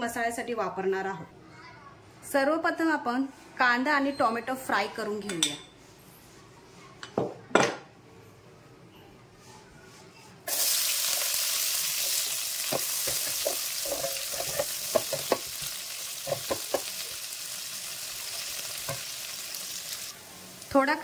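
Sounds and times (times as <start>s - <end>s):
spoon scraping and clinking on pan: 5.2s - 5.8s, 12.1s - 17.0s
onion sizzling in hot oil: 10.5s - 21.0s.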